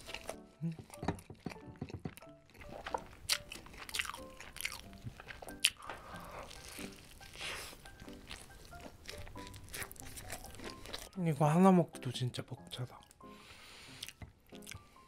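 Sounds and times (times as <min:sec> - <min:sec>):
crunchy bites and chewing: 0:00.0 - 0:11.2.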